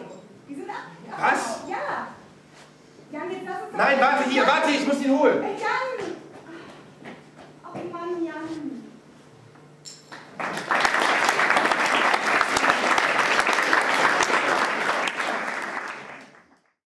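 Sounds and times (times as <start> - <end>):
audience applauding: 10.2 - 16.8.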